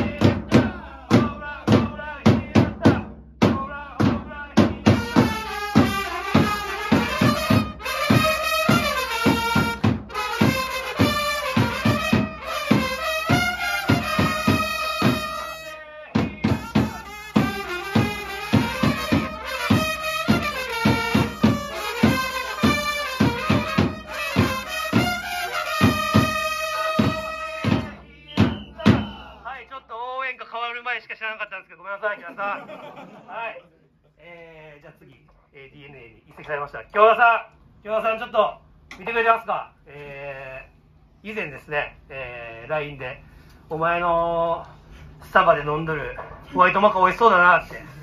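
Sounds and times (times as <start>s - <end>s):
fast bass drum beats: 0.0s - 15.5s, 16.2s - 29.4s
trumpets playing a cheer song: 4.9s - 28.0s.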